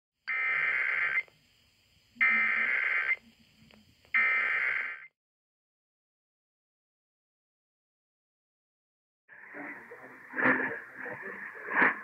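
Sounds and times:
digital data tone bursts: 0.3s - 1.3s, 2.2s - 3.2s, 4.1s - 5.1s.

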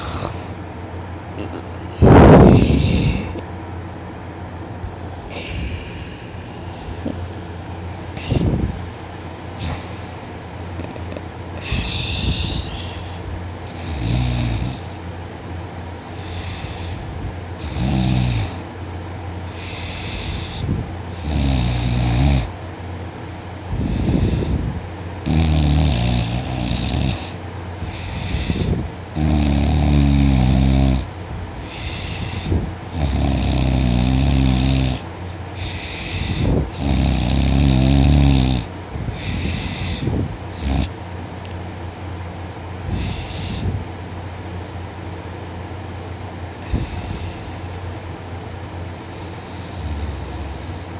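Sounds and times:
woman snoring loudly: 0.0s - 0.6s, 1.4s - 3.4s, 5.3s - 6.4s, 11.6s - 14.9s, 17.6s - 18.6s, 19.6s - 22.5s, 23.8s - 40.9s, 49.3s - 50.9s.

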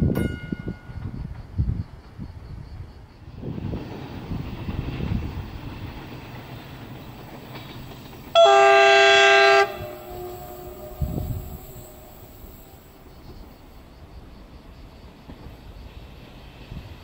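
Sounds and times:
train horn blast: 8.3s - 12.8s.

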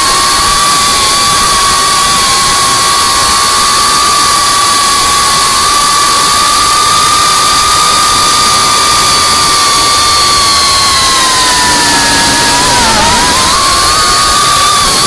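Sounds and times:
drone motors whining: 0.0s - 15.0s
loud hiss: 5.7s - 15.0s.

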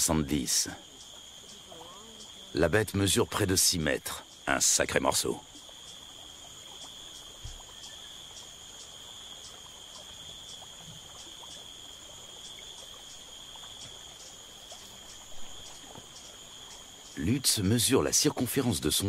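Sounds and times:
insects chirring: 0.0s - 19.0s
soft low thump: 7.4s - 7.6s.

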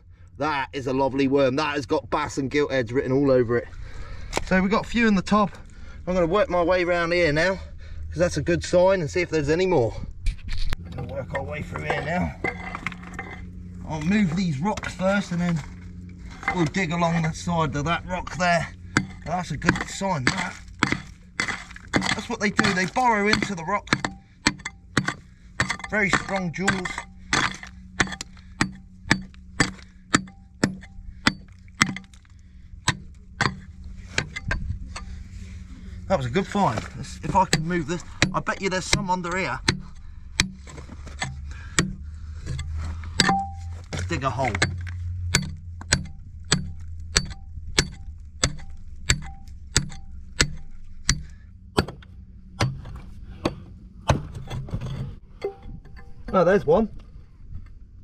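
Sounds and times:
pick striking rock: 11.3s - 35.2s, 36.1s - 56.6s.

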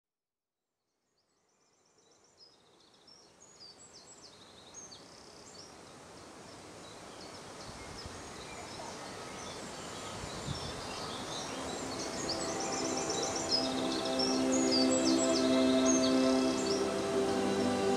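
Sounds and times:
small birds chirping and trilling: 1.6s - 17.9s
steady noisy background: 11.5s - 17.9s
held low musical tone: 11.6s - 17.9s.

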